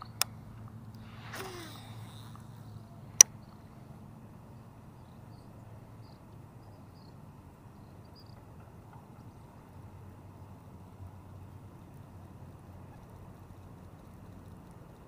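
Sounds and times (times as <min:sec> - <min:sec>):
faint outdoor background: 0:00.0 - 0:15.0
fishing reel click: 0:01.2 - 0:02.6.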